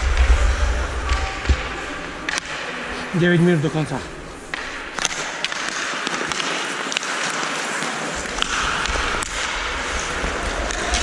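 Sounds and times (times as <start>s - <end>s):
skates scraping on ice: 1.4s - 11.0s
hockey sticks and puck clicking: 2.2s - 2.9s, 4.3s - 11.0s.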